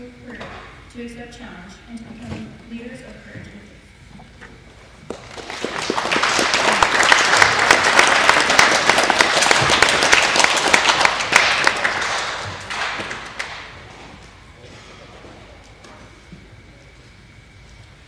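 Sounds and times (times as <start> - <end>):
audience applauding: 5.1 - 14.0.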